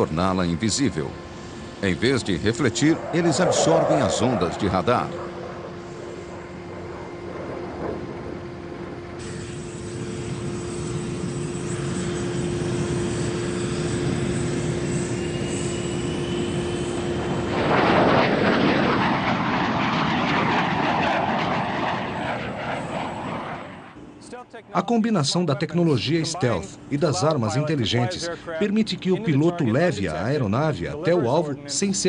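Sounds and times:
jet aircraft roaring by: 0.0 - 24.7
jet engines running: 0.0 - 32.0.

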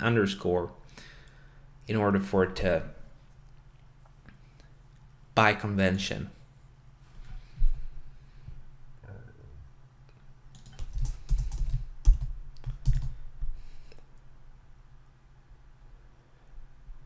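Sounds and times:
computer keyboard typing: 10.5 - 13.2.

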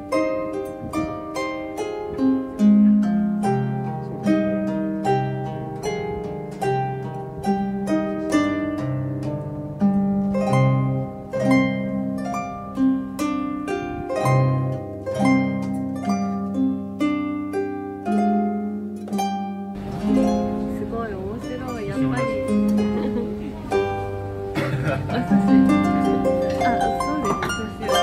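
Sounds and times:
harp plucked notes: 0.0 - 28.0.

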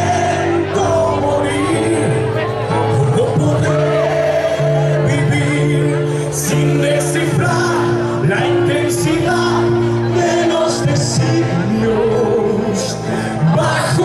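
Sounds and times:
person singing: 0.0 - 14.0
symphonic rock band playing: 0.0 - 14.0.

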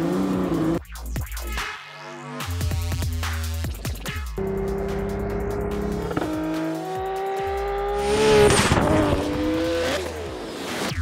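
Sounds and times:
car engine at high revs: 0.0 - 0.8, 4.4 - 10.9
electronic music: 0.5 - 11.0.

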